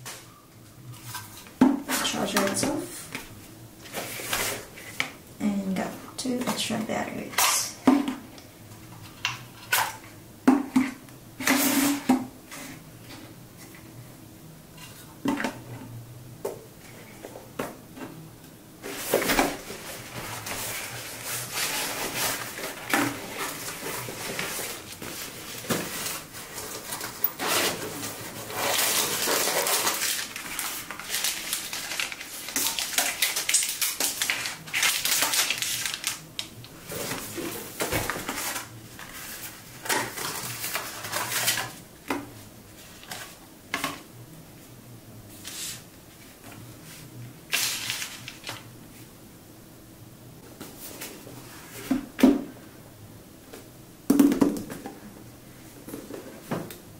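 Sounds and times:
plastic wrapping rustling: 18.8 - 41.8, 47.5 - 48.7.

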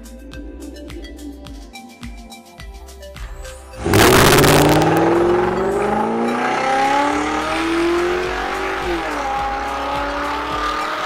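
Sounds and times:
car engine revving: 3.8 - 11.0.

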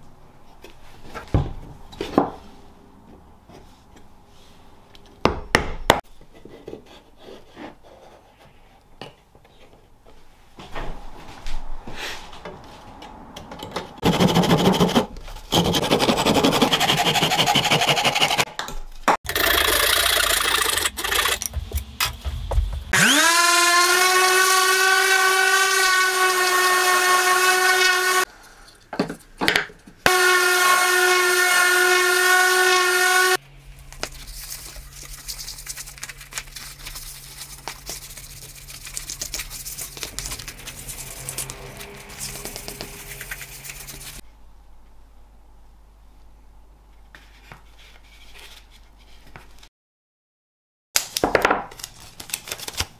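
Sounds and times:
rushing cutting noise: 19.3 - 28.2, 39.8 - 44.2
electric router whining: 22.9 - 28.2.

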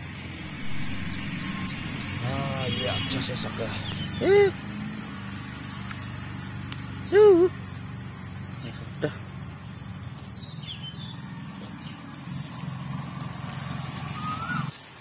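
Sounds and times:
low engine-like drone: 0.0 - 14.7
faint bird chirp: 0.1 - 6.0, 8.4 - 12.8.

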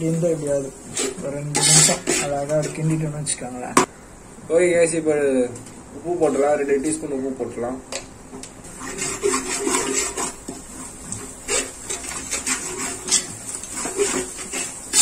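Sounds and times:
spoon scraping metal pot: 0.5 - 3.0, 8.7 - 15.0.

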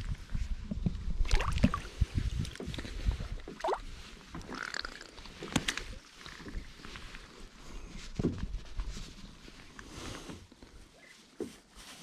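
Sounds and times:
river water splashing: 1.2 - 1.9, 3.4 - 6.5.

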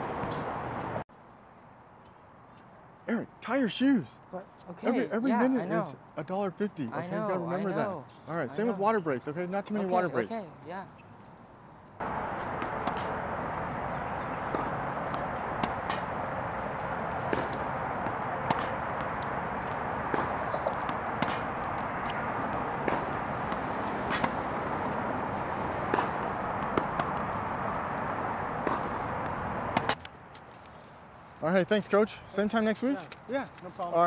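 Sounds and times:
tennis balls hitting racket: 12.0 - 30.0.

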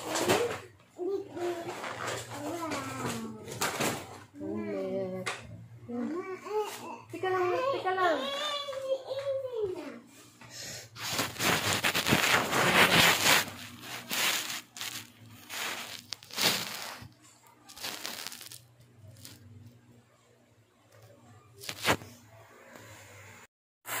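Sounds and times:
rustling and crinkling handling noise: 0.0 - 4.4, 10.9 - 19.6, 21.6 - 22.2.

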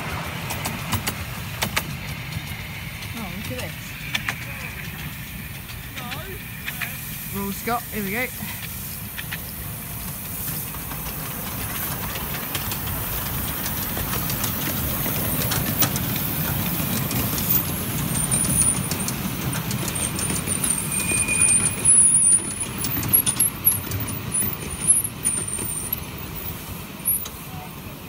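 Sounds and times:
train wheels rumbling on track: 0.0 - 28.0
clicks over rail joints: 0.4 - 7.0
wheel squeal: 13.9 - 27.6.

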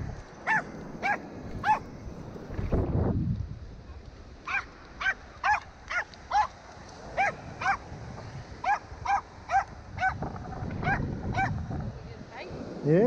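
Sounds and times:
small dog yipping: 0.4 - 1.8, 4.5 - 6.6, 7.2 - 7.8, 8.6 - 10.2, 10.8 - 11.6.

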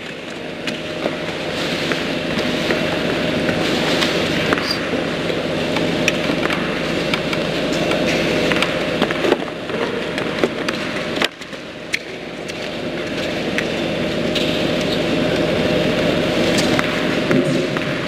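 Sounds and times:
indoor arena hum and hiss: 0.0 - 18.0.

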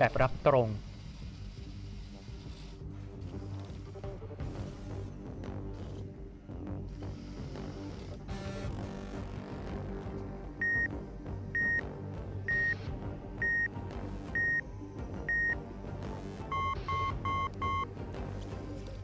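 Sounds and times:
background music: 0.0 - 19.0
high electronic beeps: 16.5 - 17.9.

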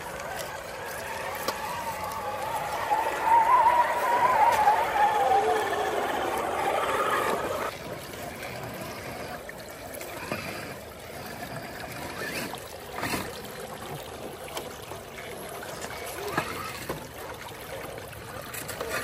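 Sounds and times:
creek water trickling: 0.0 - 19.0
toy truck churning through water: 0.0 - 19.0
electric motor whining: 2.6 - 7.7.

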